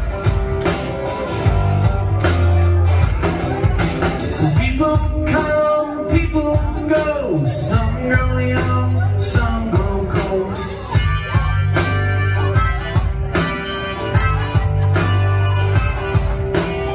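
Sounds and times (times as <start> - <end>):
rock band playing: 0.0 - 16.9
man singing lead: 4.0 - 16.9.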